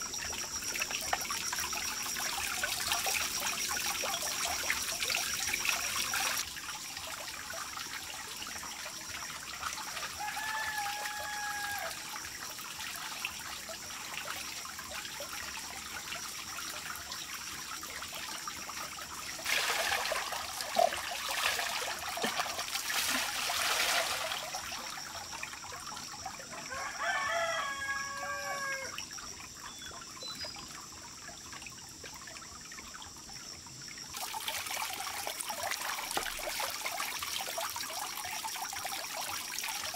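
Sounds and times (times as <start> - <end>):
water trickling: 0.0 - 39.9
rooster crowing: 10.2 - 12.0, 26.7 - 29.0
water splashing from ladle: 19.4 - 25.0.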